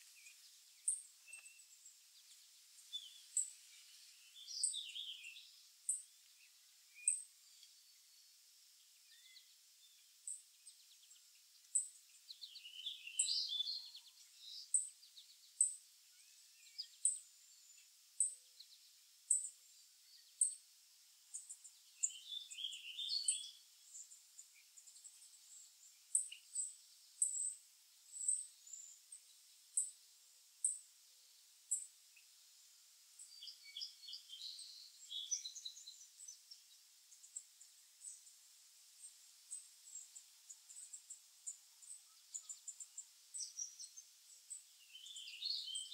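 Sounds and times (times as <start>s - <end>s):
birds twittering: 0.0s - 8.1s, 10.6s - 17.8s, 21.3s - 29.0s, 33.2s - 38.3s, 40.7s - 45.9s.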